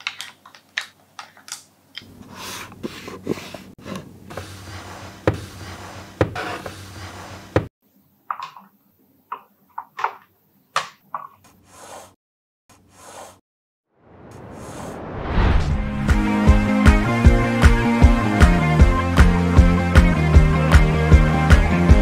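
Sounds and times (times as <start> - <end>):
wooden pieces knocking and clicking: 0.0 - 2.1.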